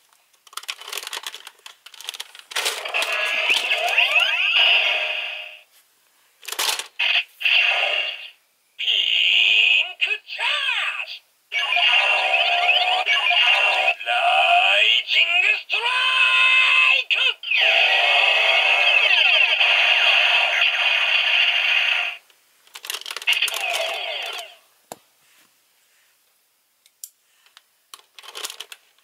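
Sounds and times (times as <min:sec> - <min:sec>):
toy gun sound effects: 0:02.6 - 0:05.2, 0:11.6 - 0:14.0, 0:23.3 - 0:24.6
announcer voice through tinny speaker: 0:08.1 - 0:19.6, 0:23.4 - 0:24.6.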